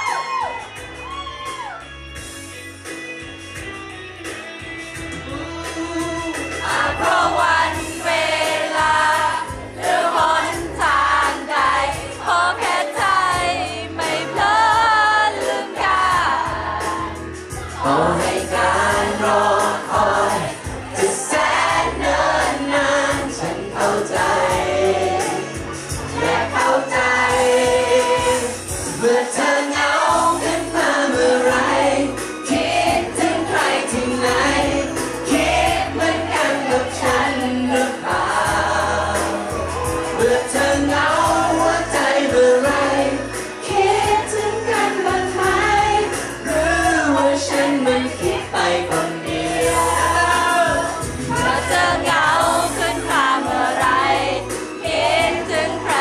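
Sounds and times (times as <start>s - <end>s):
backing music: 0.0s - 56.0s
man singing into a microphone: 5.3s - 8.0s, 17.8s - 25.6s, 26.2s - 51.8s.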